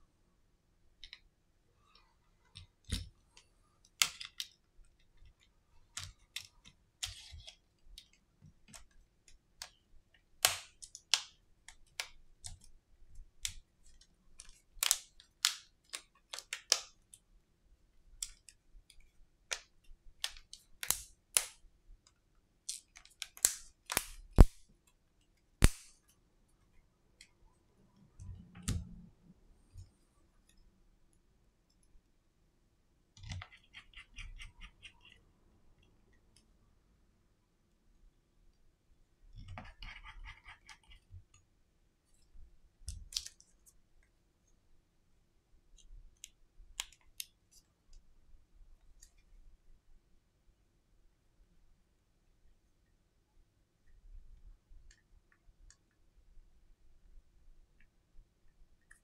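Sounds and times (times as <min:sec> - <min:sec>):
plastic clips clicking and snapping: 0:14.4 - 0:17.0.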